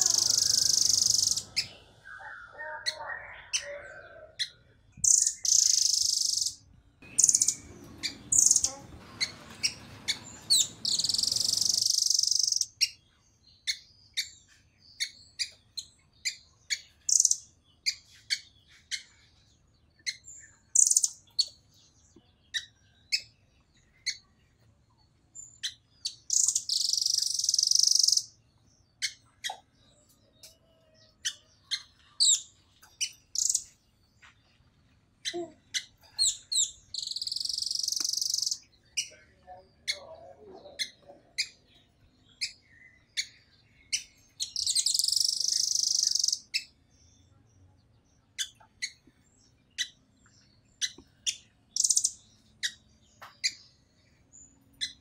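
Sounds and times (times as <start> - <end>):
bird calling high sharp notes: 0.0 - 4.4.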